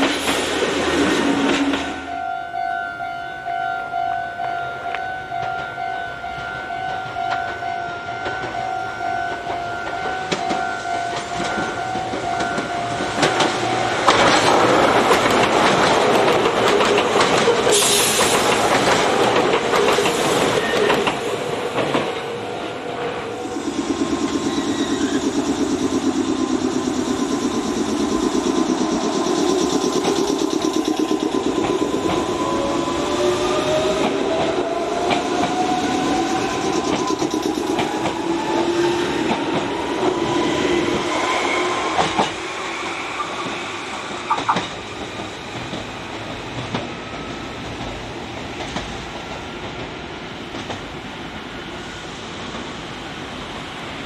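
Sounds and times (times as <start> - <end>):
train wheel noise: 0.0 - 2.3, 4.4 - 54.0
electric train motor whine: 22.4 - 48.2.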